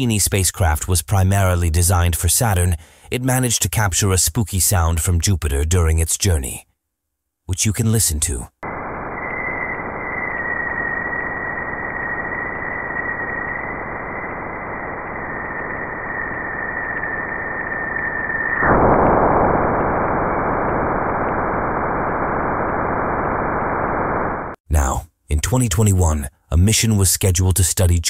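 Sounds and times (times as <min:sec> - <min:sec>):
static hiss: 0:08.6 - 0:24.6.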